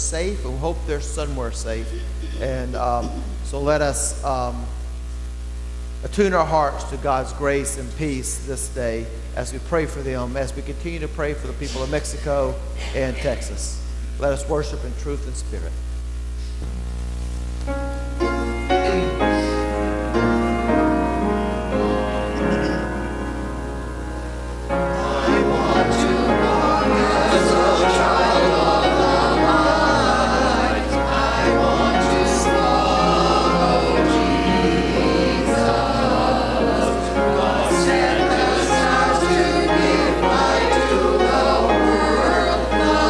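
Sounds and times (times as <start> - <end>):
upright piano playing: 17.7 - 43.0
choir singing a hymn: 18.2 - 43.0.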